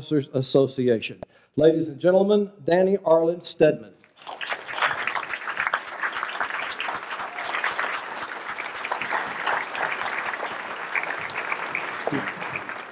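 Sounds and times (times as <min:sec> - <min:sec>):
audience applauding: 0:04.2 - 0:12.9.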